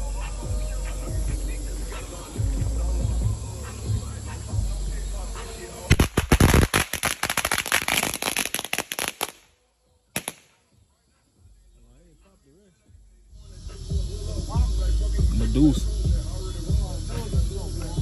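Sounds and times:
firecrackers popping: 5.4 - 9.5, 10.1 - 10.7.

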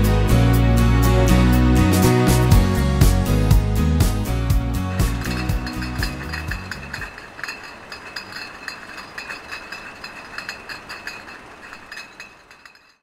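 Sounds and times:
background music: 0.0 - 7.2
glass clinking and rattling: 4.9 - 13.0.

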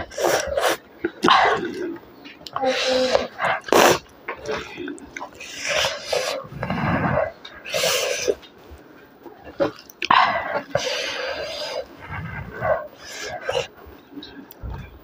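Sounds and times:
wet chewing and mouth smacking: 3.2 - 6.4, 7.3 - 15.0.

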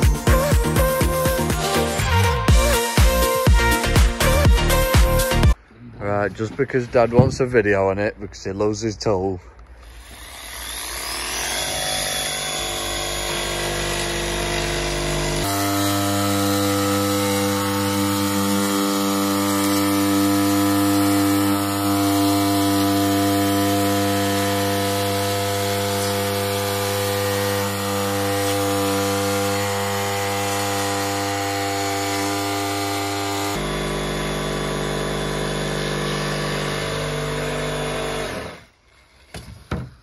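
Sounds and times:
saw cutting insulation board: 9.6 - 40.0.

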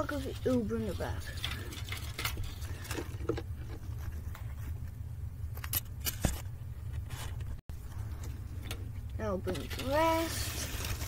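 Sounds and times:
steady low hum: 0.0 - 11.0
aluminium foil rustling on carpet: 9.5 - 11.0.

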